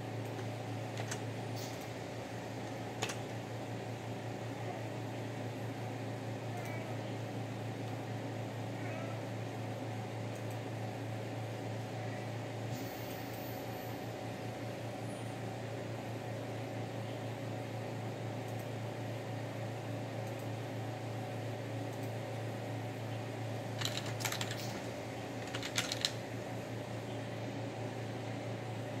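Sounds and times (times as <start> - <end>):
electric fan humming: 0.0 - 8.7, 17.5 - 29.0.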